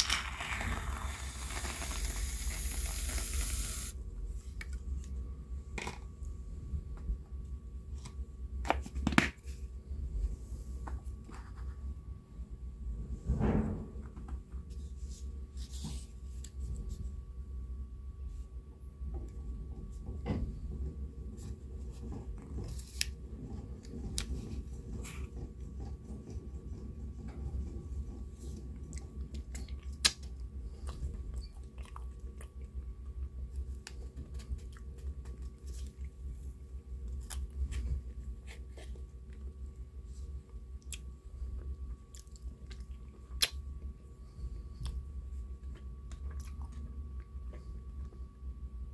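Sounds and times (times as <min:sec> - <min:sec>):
chewing and wet mouth sounds: 0:28.8 - 0:36.2, 0:37.1 - 0:37.7, 0:40.8 - 0:43.8, 0:44.8 - 0:48.2.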